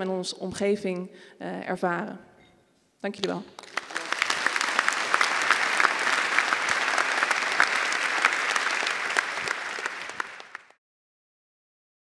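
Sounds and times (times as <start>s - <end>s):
audience applauding: 3.5s - 10.8s.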